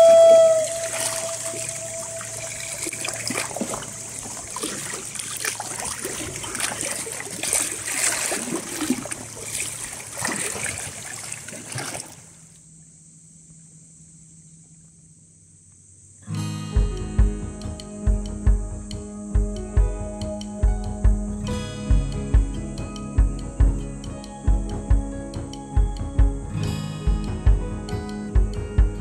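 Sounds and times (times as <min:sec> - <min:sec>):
music: 0:00.0 - 0:03.9, 0:16.3 - 0:29.0
seawater washing over rock: 0:00.4 - 0:12.3.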